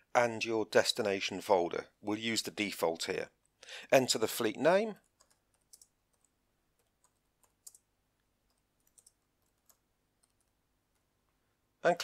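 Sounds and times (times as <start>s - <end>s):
faint keyboard typing: 5.0s - 11.4s.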